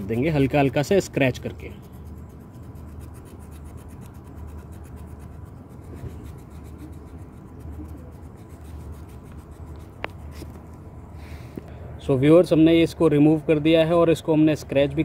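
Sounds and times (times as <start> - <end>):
knife scraping wood: 0.0 - 10.8.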